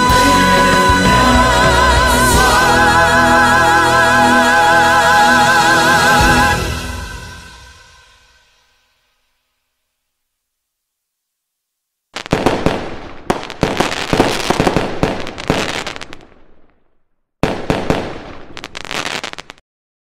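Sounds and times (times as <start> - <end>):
fireworks bangs and crackles: 12.2 - 19.6.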